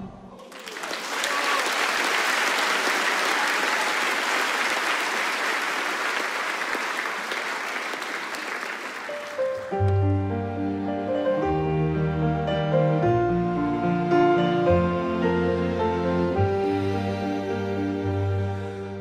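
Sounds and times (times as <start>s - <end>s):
large audience applauding: 0.4s - 10.0s.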